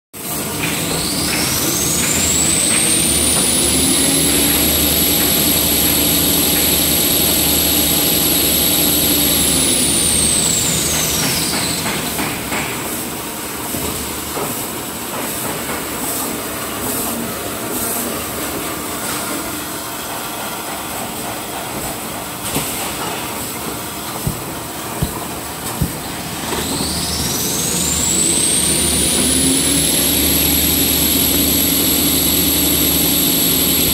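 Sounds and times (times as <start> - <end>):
high motor whine: 24.2 - 33.9.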